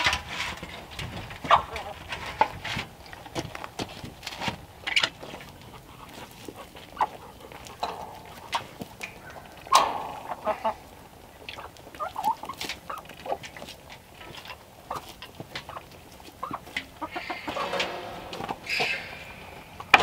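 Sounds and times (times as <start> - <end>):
chickens clucking: 0.0 - 20.0
sharp clicks and knocks: 7.6 - 11.6.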